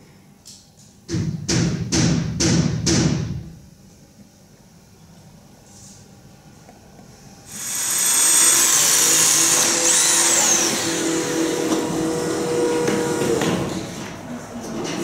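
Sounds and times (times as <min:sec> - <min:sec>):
electric motor whirring: 0:07.5 - 0:13.8.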